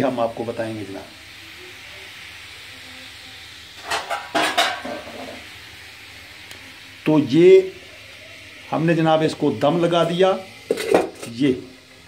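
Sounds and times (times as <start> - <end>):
steady low hiss: 0.0 - 12.0
metal cookware clattering: 3.8 - 5.4, 10.7 - 11.3.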